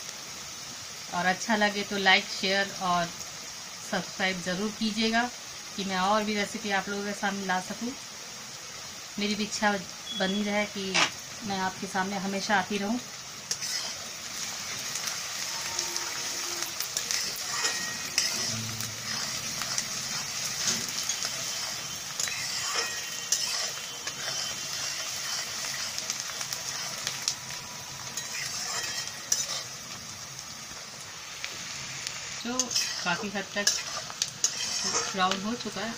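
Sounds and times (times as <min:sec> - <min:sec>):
onions sizzling in oil: 0:00.0 - 0:35.9
spatula scraping pan: 0:13.5 - 0:14.1, 0:15.8 - 0:27.4, 0:28.2 - 0:29.8, 0:32.6 - 0:35.4.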